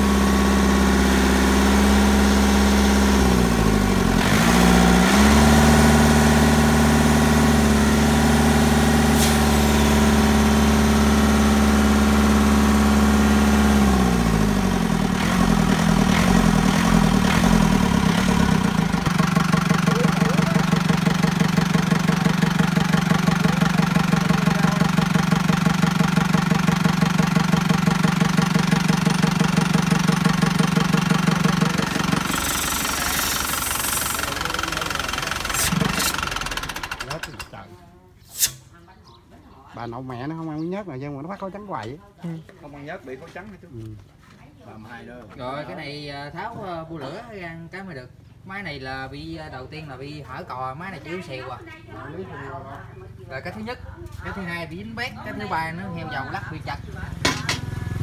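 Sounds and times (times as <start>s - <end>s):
tractor diesel engine running: 0.0s - 37.6s, 56.8s - 58.0s.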